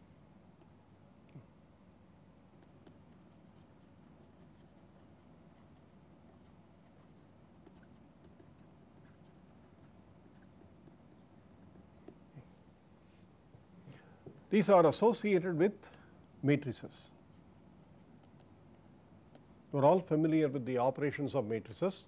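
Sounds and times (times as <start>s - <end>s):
low steady hum: 0.0s - 22.0s
stylus scratching on tablet: 2.5s - 12.4s, 16.8s - 19.5s.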